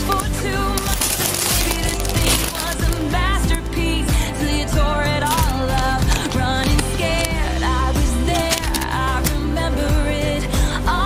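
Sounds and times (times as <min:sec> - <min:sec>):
person singing: 0:00.0 - 0:11.0
pop song background music: 0:00.0 - 0:11.0.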